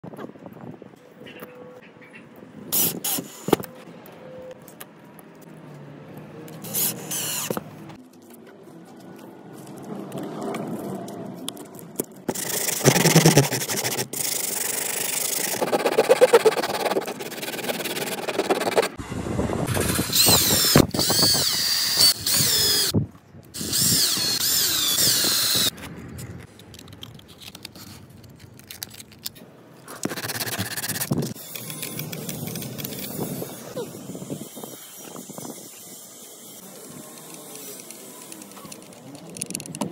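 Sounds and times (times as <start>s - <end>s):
cordless drill driving screws: 20.1s - 22.9s, 23.6s - 25.7s
clicks and handling noise: 25.5s - 33.4s, 37.0s - 39.9s.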